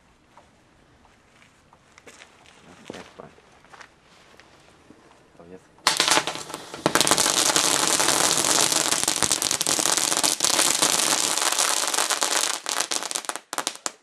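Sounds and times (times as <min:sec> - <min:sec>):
crackling fireworks: 0:05.8 - 0:14.0.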